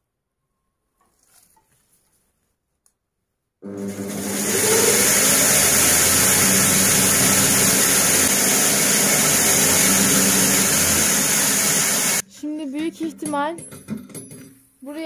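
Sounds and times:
electric crushing machine humming: 3.6s - 12.2s.

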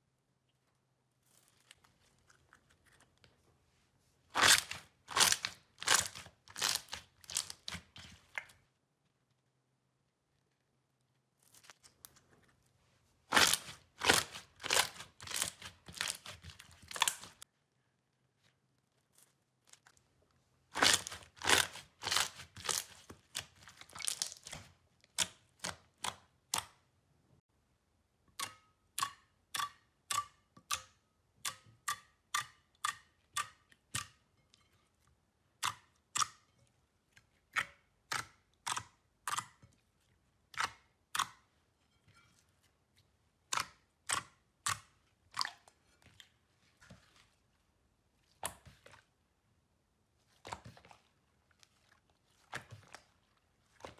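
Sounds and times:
slime crackling and popping: 4.3s - 8.1s, 13.3s - 17.4s, 20.7s - 26.7s.

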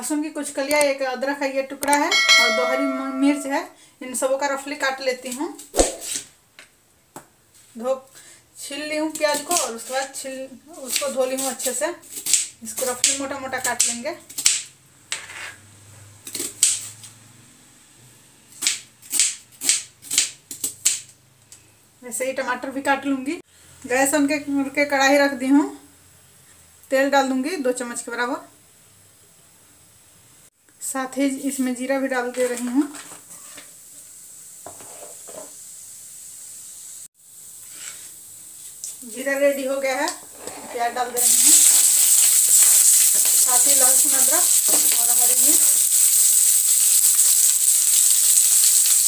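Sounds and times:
seeds sizzling in hot oil: 8.6s - 14.6s, 31.4s - 49.0s.

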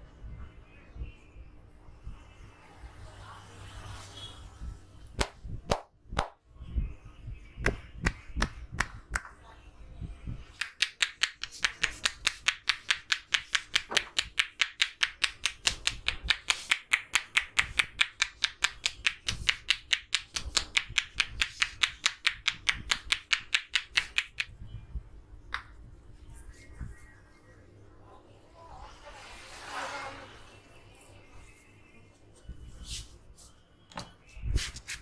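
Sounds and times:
hands tapping on scalp: 7.6s - 9.3s, 10.5s - 24.6s.

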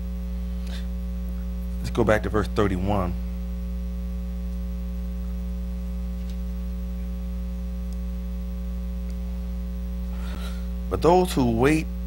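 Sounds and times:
electrical mains hum: 0.0s - 12.0s
faint ticks: 7.8s - 8.0s.

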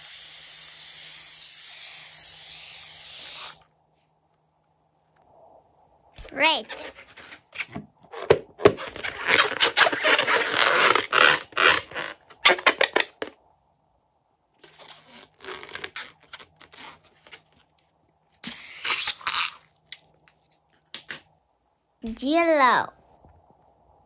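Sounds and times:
rubber balloon squeaking: 6.4s - 13.0s, 14.6s - 17.5s.

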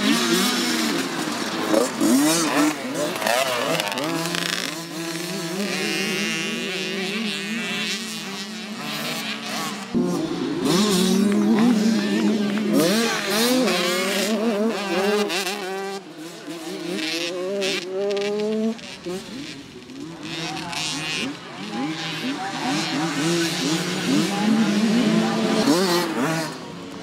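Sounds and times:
motocross bike engines revving: 0.0s - 27.0s.

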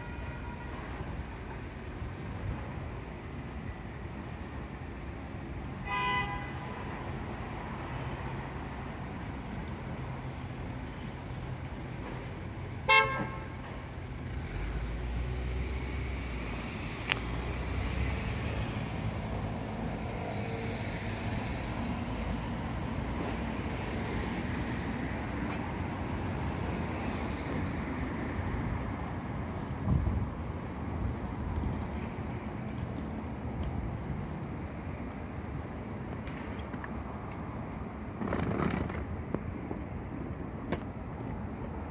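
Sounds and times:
street traffic rumble: 0.0s - 41.9s
vehicle horn toots: 5.8s - 6.6s, 12.9s - 13.6s.

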